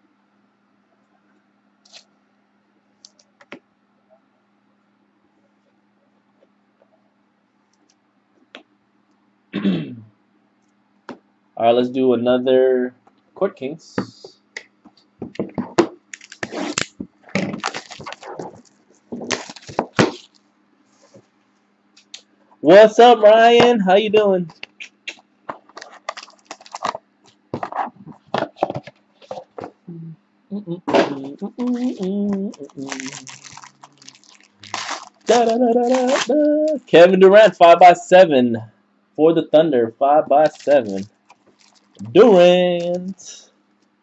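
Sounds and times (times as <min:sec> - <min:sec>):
low steady hum: 0:00.0 - 0:44.0
shrink wrap crackling and tearing: 0:16.1 - 0:20.4, 0:25.5 - 0:27.0, 0:31.6 - 0:36.8, 0:40.4 - 0:43.1.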